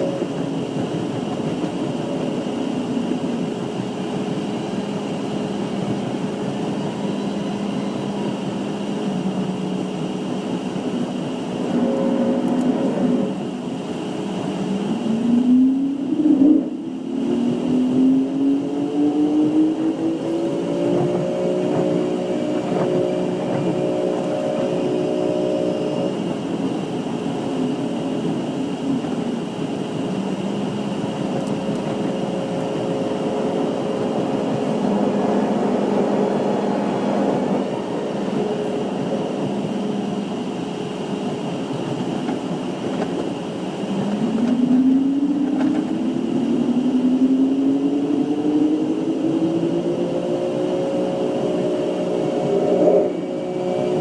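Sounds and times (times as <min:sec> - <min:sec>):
train rumble from inside coach: 0:00.0 - 0:54.0.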